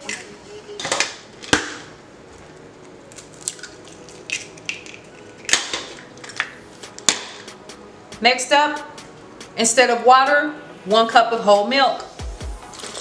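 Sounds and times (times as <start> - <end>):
eggshell cracking: 2.8 - 7.4.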